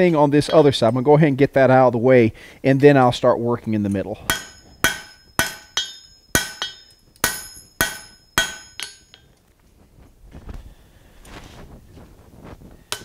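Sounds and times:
hammer striking hot steel on anvil: 4.3s - 9.2s.

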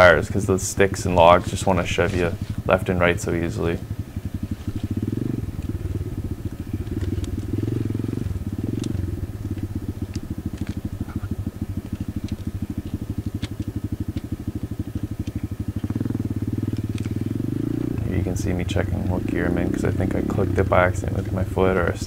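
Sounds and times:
motorbike engine running: 0.0s - 22.0s
faint sharp clicks: 6.8s - 7.5s, 8.7s - 14.3s.

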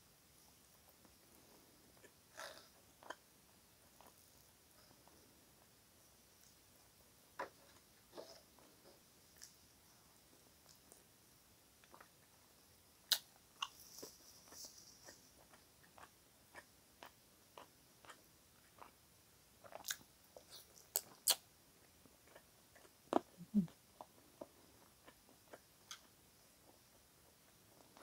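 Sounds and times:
chewing and lip smacks: 19.6s - 21.4s.

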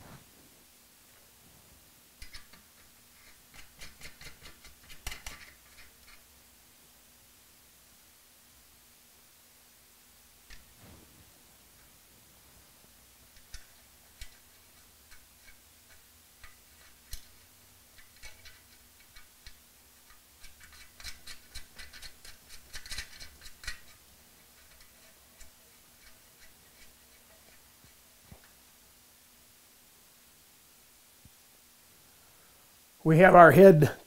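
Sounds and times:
metal nuts and washers clicking: 13.3s - 28.6s.

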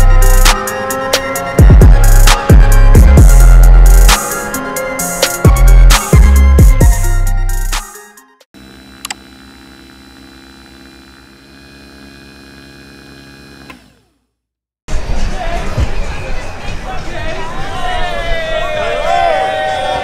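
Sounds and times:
sliding deep bass notes: 0.0s - 0.6s, 1.2s - 7.8s
hip hop backing music: 0.0s - 8.4s.

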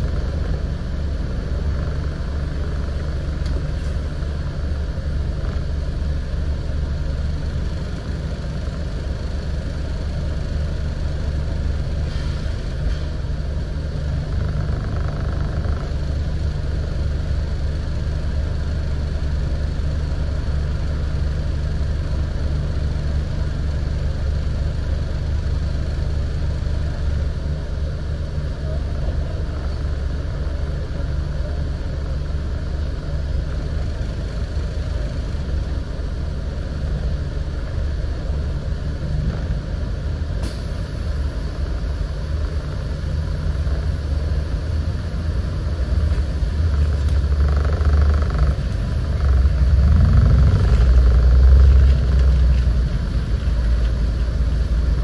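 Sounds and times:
diesel bus engine droning: 0.0s - 55.0s.

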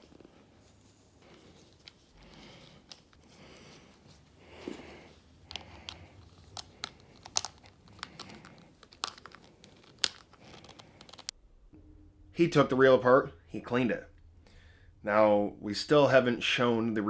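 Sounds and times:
handling rustle: 0.0s - 11.3s.

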